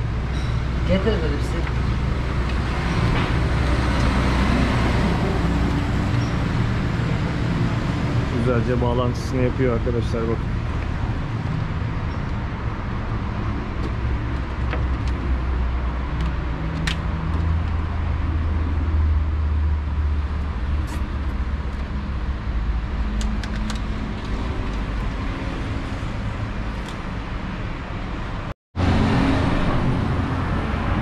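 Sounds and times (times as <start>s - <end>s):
road traffic rumble: 0.0s - 31.0s.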